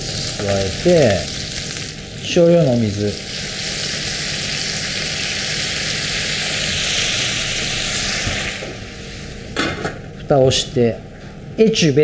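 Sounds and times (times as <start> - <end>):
cabbage sizzling in a pan: 0.0 - 9.6
water hissing in hot fat: 0.0 - 9.6.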